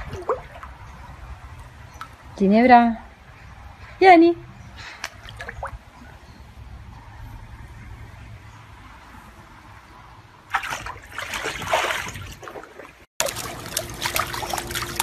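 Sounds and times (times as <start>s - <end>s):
pool water sloshing and splashing: 0.0s - 2.2s, 5.0s - 6.0s, 10.4s - 15.0s
puppy paddling splashes: 0.0s - 2.2s, 5.0s - 6.0s, 10.5s - 15.0s.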